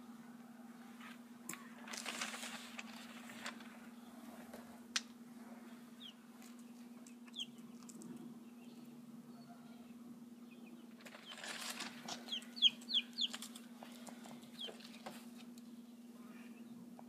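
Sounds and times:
faint low hum: 0:00.0 - 0:17.0
chick chirps: 0:05.9 - 0:07.9, 0:08.5 - 0:13.6, 0:14.4 - 0:15.0
chick feet scratching paper: 0:11.0 - 0:15.5.

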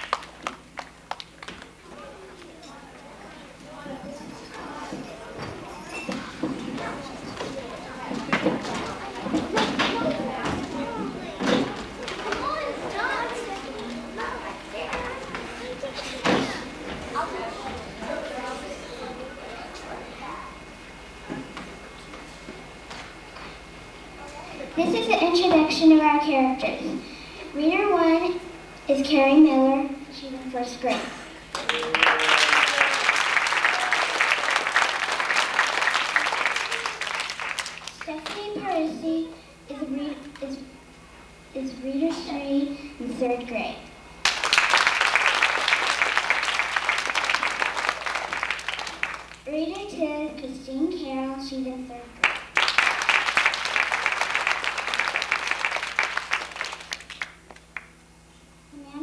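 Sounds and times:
audience applauding: 0:00.0 - 0:01.5, 0:31.5 - 0:38.1, 0:44.2 - 0:49.4, 0:52.2 - 0:57.9.

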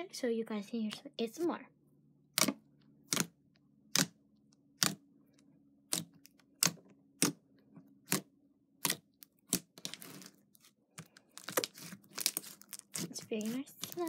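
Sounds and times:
fingers squishing sticky slime: 0:02.3 - 0:05.0, 0:05.8 - 0:07.4, 0:08.0 - 0:14.0.

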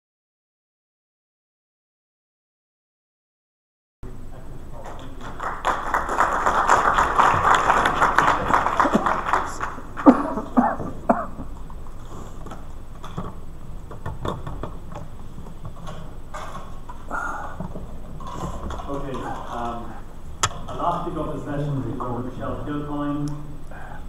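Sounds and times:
murmur of hall: 0:04.0 - 0:24.0
audience applause: 0:04.8 - 0:11.0
cough: 0:10.0 - 0:11.5.

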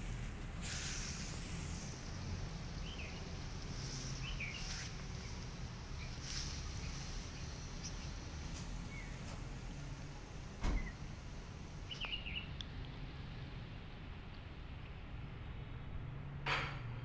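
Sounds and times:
high bird chirps: 0:04.2 - 0:05.4, 0:11.9 - 0:12.5
single thump: 0:10.6 - 0:10.9.

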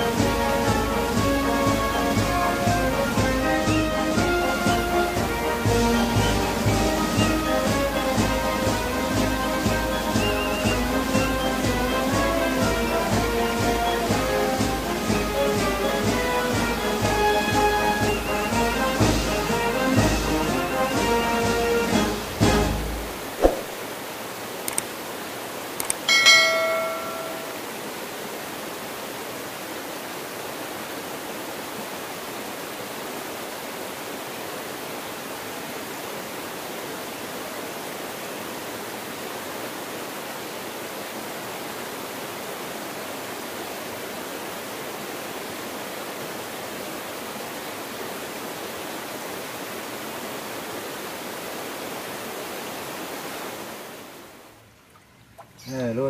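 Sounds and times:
stream rushing over rocks: 0:00.0 - 0:55.7
short bell ding: 0:26.1 - 0:27.6.

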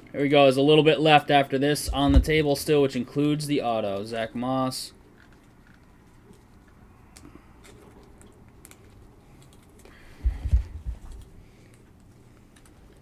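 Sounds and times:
dull thumps: 0:01.8 - 0:02.6.

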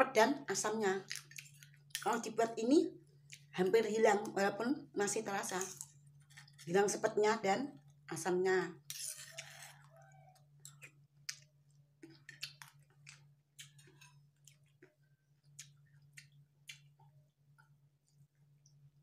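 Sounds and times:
low steady hum: 0:00.0 - 0:19.0
chewing and mouth clicks: 0:09.2 - 0:18.8.

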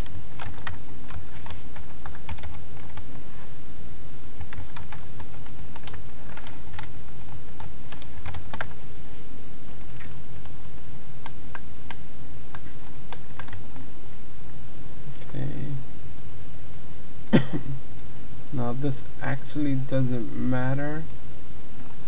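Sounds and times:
keyboard typing: 0:00.0 - 0:03.2, 0:04.4 - 0:08.8, 0:09.7 - 0:10.6, 0:11.2 - 0:13.8
steady low hum: 0:00.0 - 0:22.0.

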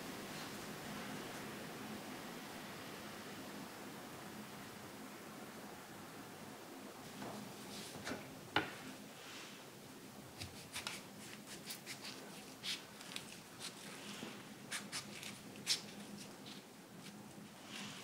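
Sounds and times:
knife cutting avocado: 0:10.4 - 0:12.9.

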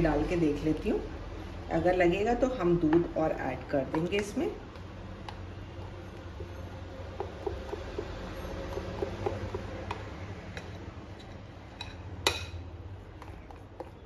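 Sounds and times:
utensil stirring batter in glass bowl: 0:02.8 - 0:11.9, 0:12.8 - 0:14.0.

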